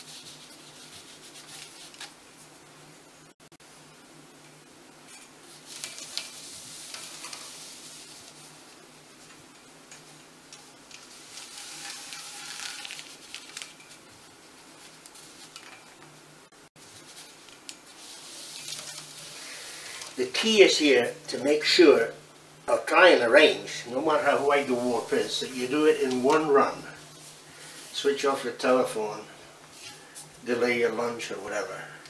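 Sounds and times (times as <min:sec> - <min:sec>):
thread rustling on loom: 0:05.0 - 0:16.2, 0:16.8 - 0:20.6, 0:24.2 - 0:28.3.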